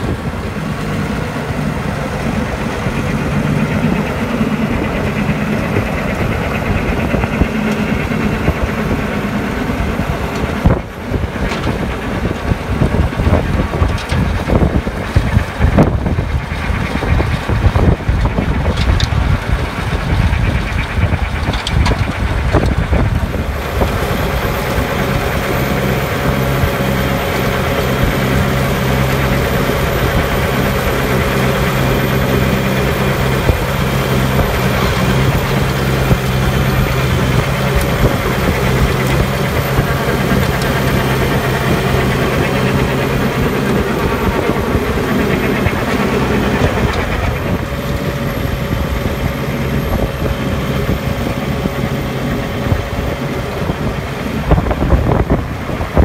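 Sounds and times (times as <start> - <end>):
mulcher cutting grass sod: 0.0 - 56.0
tractor engine running: 0.0 - 56.0
wind buffeting microphone: 0.0 - 56.0.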